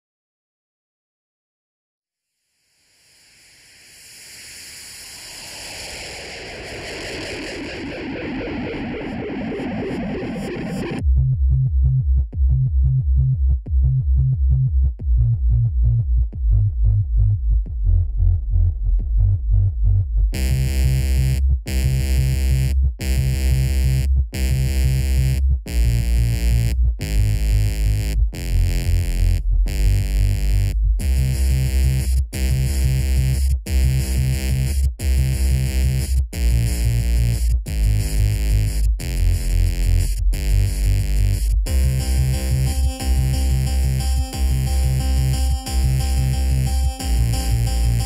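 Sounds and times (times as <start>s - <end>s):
electronic music with heavy bass: 4.8s - 48.0s.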